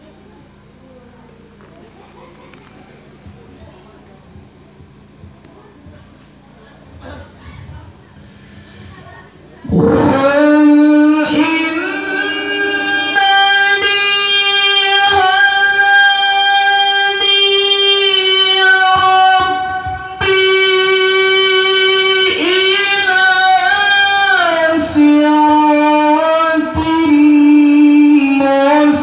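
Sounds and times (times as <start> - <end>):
man reciting melodically through loudspeaker: 9.7 - 29.0.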